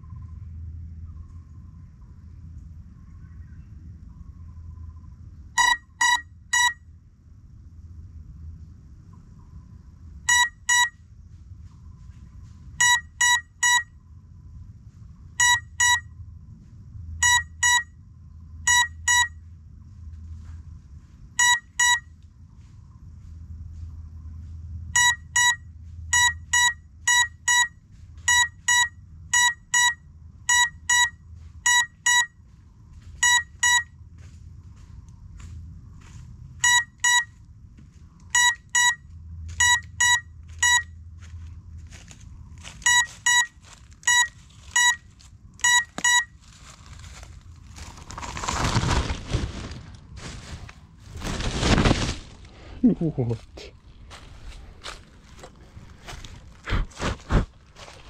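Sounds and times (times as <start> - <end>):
faint low rumble: 0.0 - 58.0
short high beeps: 21.4 - 22.0, 33.2 - 33.9, 36.6 - 37.3, 38.4 - 39.0, 39.6 - 40.9, 42.8 - 45.0, 45.6 - 46.4.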